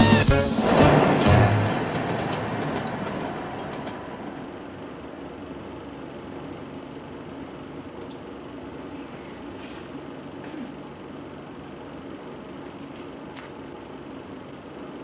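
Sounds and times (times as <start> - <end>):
electric train moving: 0.0 - 6.5
station background rumble: 0.0 - 15.0.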